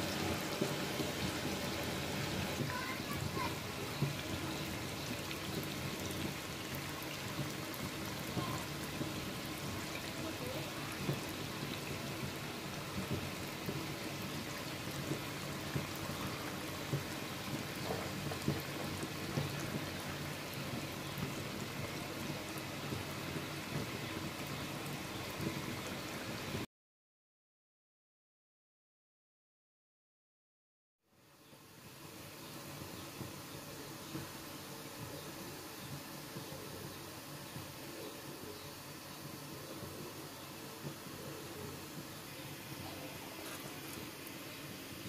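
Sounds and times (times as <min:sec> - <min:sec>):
curry sizzling in a pan: 0:00.0 - 0:26.6.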